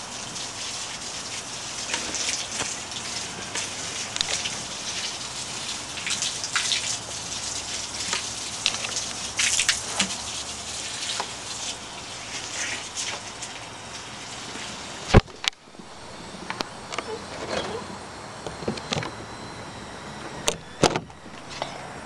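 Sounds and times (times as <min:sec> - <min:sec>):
hose water splashing on ground: 0:00.0 - 0:15.2.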